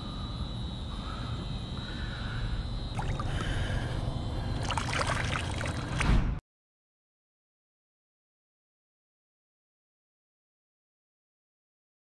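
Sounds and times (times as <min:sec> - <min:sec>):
steady low rumble: 0:00.0 - 0:06.4
water splashing and sloshing: 0:02.9 - 0:06.4.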